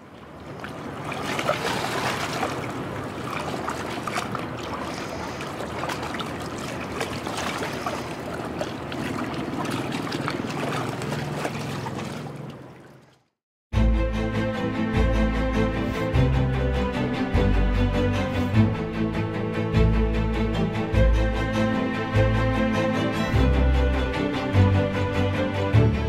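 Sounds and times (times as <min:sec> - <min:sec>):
river water lapping and splashing: 0:00.0 - 0:13.4.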